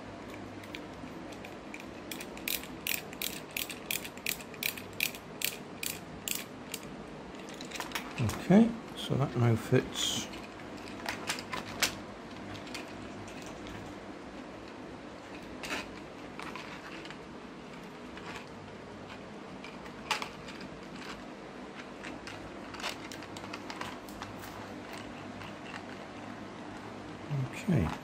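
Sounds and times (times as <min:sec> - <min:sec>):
electric fan humming: 0:00.0 - 0:28.0
plastic parts clicking and knocking: 0:00.3 - 0:08.4.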